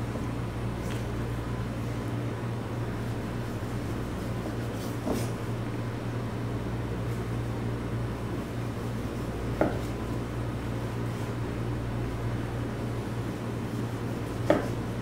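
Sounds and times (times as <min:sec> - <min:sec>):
low room hum: 0:00.0 - 0:15.0
knife knocking on cutting board: 0:09.6 - 0:09.8, 0:14.4 - 0:14.8.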